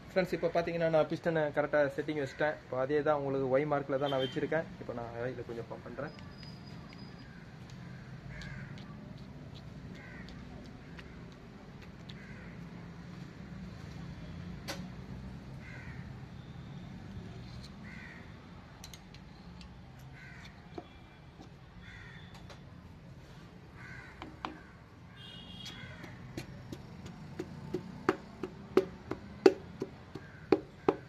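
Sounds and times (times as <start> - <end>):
crow cawing: 7.3 - 8.9, 9.9 - 11.2, 12.1 - 12.6, 15.6 - 16.5, 17.8 - 18.3, 20.1 - 21.0, 21.8 - 22.3, 23.8 - 26.4, 30.1 - 31.0.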